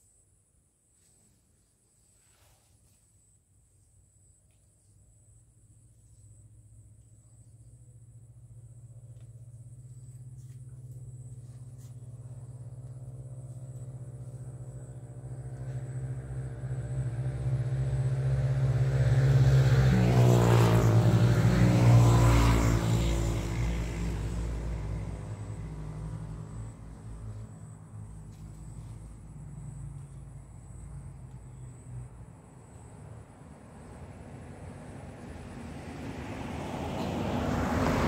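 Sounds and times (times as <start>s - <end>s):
engine passing by: 6.3s - 38.0s.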